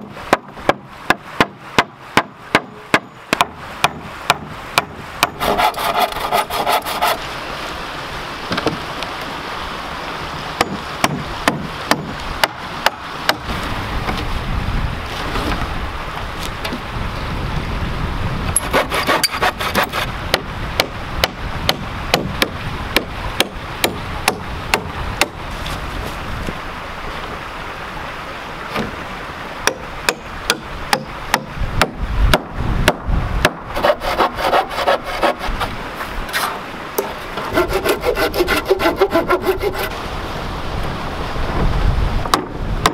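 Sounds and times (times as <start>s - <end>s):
hatchet knocking on wooden boards: 0.3s - 5.4s, 10.6s - 13.4s, 19.2s - 25.4s, 29.7s - 33.6s
hand saw cutting through log: 3.8s - 7.3s, 18.6s - 25.4s, 33.4s - 40.0s.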